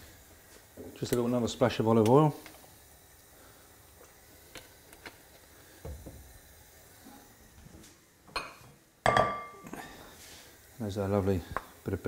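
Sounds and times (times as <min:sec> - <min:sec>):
dish clattering on worktop: 0:08.4 - 0:09.6.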